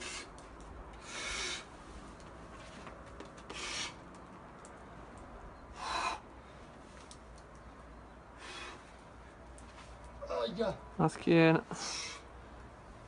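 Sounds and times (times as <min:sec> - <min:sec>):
climber's rasping hisses: 0:00.0 - 0:00.4, 0:03.5 - 0:04.0.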